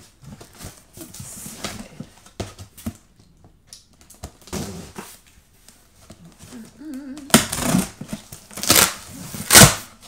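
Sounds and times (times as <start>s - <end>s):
fingers scratching packing tape: 8.5s - 9.9s.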